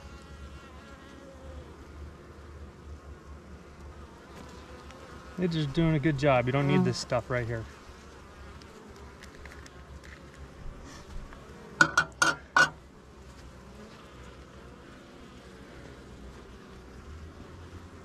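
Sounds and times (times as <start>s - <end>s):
bees buzzing: 0.0s - 18.0s
metal tool knocking on wood: 11.8s - 12.8s.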